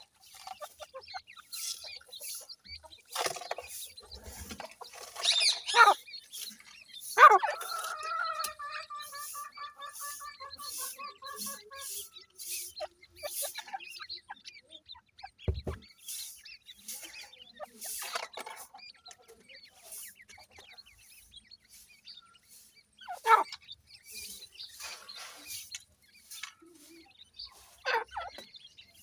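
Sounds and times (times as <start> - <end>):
chicks chirping: 0.0 - 29.0
hen clucking: 0.0 - 29.0
dull thump: 15.5 - 15.8.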